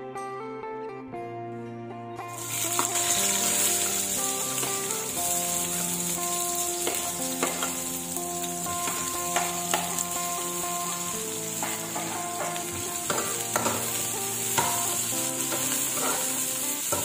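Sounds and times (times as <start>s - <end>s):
food sizzling in hot oil: 2.3s - 17.0s.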